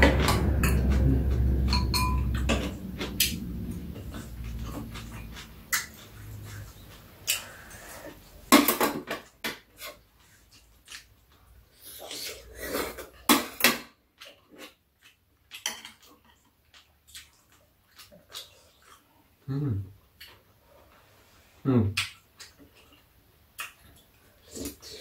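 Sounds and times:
utensils clinking against bowls: 0.0s - 6.0s.

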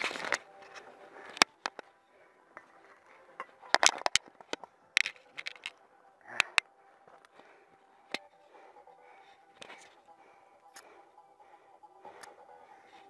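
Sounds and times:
sharp irregular clicks and snaps: 0.0s - 7.4s.

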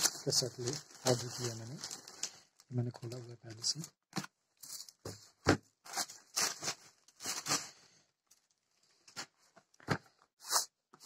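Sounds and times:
plastic wrap crinkling: 0.0s - 5.1s, 5.8s - 8.6s.

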